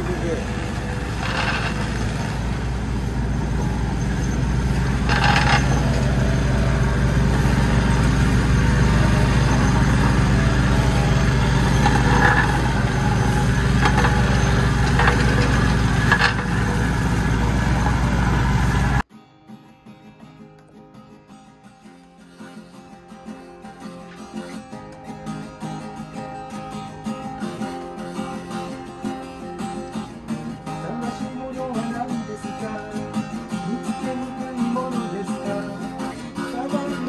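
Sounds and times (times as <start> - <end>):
plate compactor engine running: 0.0 - 19.0.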